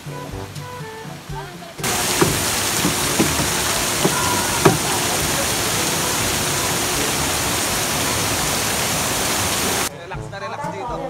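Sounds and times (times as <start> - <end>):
fountain water splashing into pool: 1.8 - 9.9.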